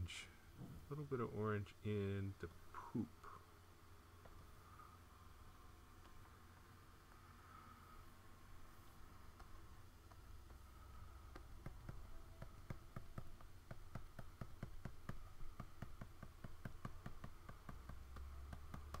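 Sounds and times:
faint steady hum: 0:00.0 - 0:19.0
light taps and clicks: 0:11.3 - 0:19.0.

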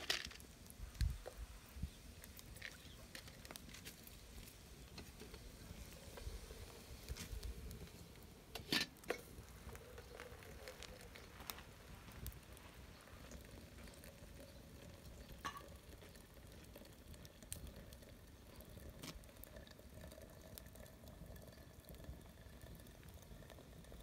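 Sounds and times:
kettle clicking and clinking: 0:08.5 - 0:11.3, 0:15.4 - 0:16.0.

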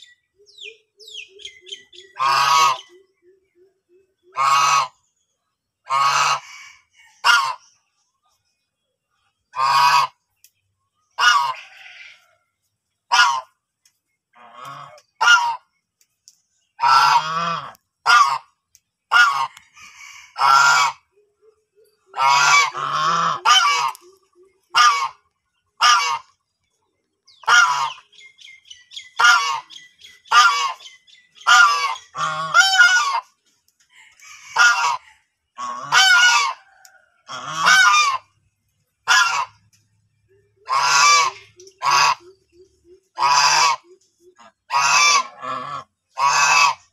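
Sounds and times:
geese honking: 0:01.0 - 0:03.3, 0:04.0 - 0:05.2, 0:05.8 - 0:07.8, 0:09.5 - 0:10.3, 0:11.1 - 0:12.4, 0:13.1 - 0:13.6, 0:14.4 - 0:15.7, 0:16.8 - 0:21.2, 0:22.0 - 0:26.5, 0:27.3 - 0:33.4, 0:34.1 - 0:38.4, 0:39.0 - 0:39.6, 0:40.5 - 0:46.9.

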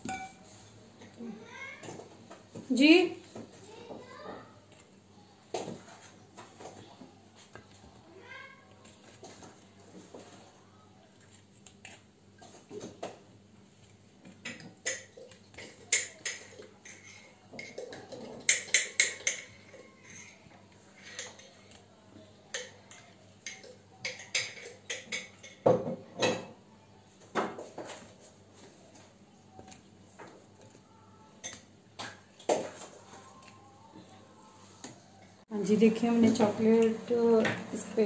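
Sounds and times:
fork clinking against glass bowl: 0:00.0 - 0:00.4.

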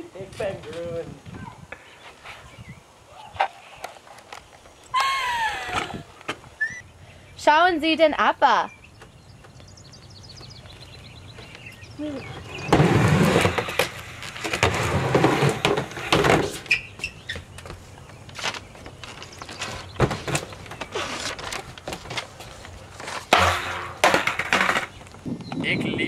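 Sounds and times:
rustling noise: 0:00.2 - 0:02.7, 0:12.4 - 0:25.3
footsteps on wooden planks: 0:09.0 - 0:25.3.

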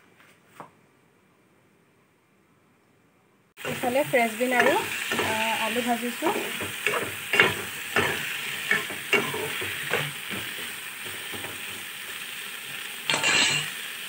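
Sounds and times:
metal spoon scraping a pan: 0:03.6 - 0:11.9, 0:13.1 - 0:13.9
vegetables sizzling in a pan: 0:03.6 - 0:14.0.

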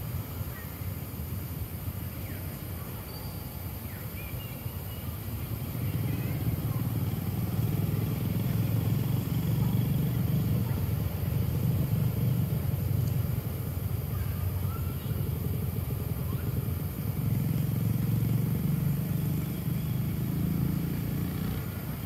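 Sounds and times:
low engine rumble: 0:00.0 - 0:22.0
faint bird chirps: 0:02.1 - 0:06.9, 0:14.0 - 0:16.8, 0:18.3 - 0:21.0.

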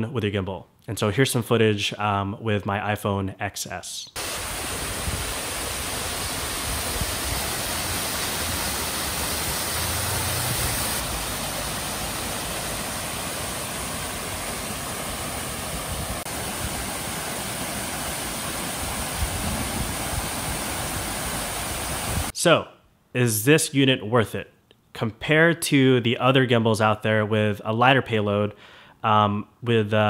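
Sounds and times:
waterfall splashing into pool: 0:04.2 - 0:22.3.

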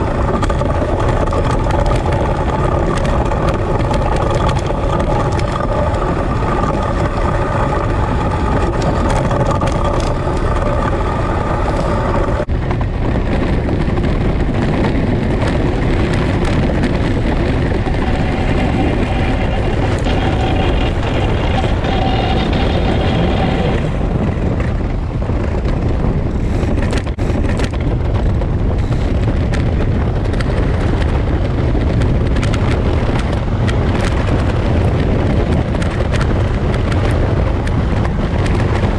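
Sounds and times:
runners scraping on ice: 0:00.0 - 0:12.5
pitched hum: 0:00.0 - 0:38.9
wind rushing: 0:00.0 - 0:38.9.

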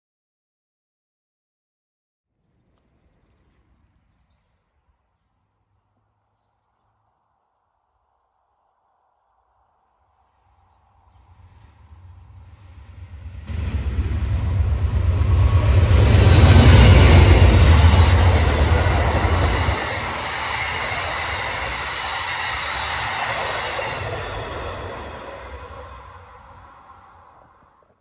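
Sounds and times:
passenger train passing: 0:11.3 - 0:27.7
train wheels on rail: 0:12.3 - 0:27.4.

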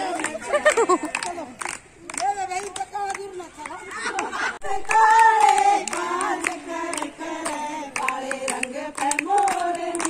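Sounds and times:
hand-clapping: 0:00.0 - 0:04.3, 0:04.9 - 0:10.0
women singing together: 0:04.4 - 0:10.0.

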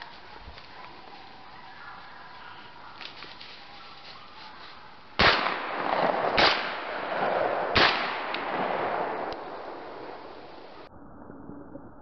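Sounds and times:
shotgun shots echoing: 0:05.2 - 0:10.9.

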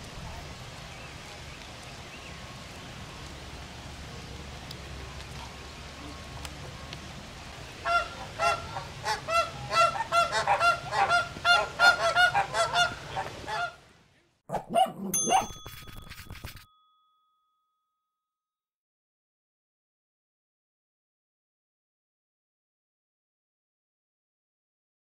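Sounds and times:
flamingos honking: 0:07.4 - 0:13.8
chime-like jingle: 0:15.0 - 0:18.2.

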